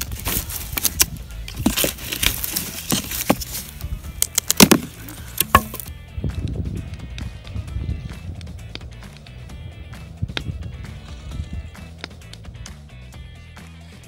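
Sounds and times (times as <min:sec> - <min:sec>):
dry sticks snapping: 0:00.0 - 0:05.9, 0:11.8 - 0:12.8.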